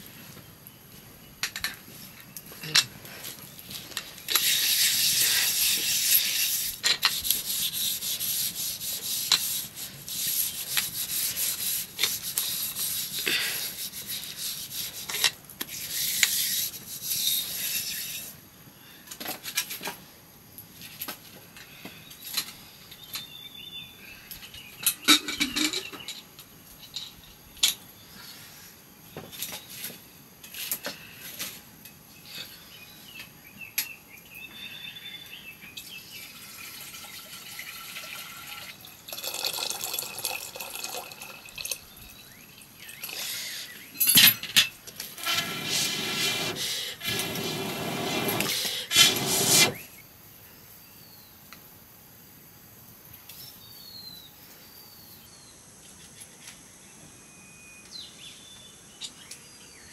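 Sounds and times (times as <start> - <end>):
rasping scraping strokes: 3.8 - 18.4, 45.0 - 49.9.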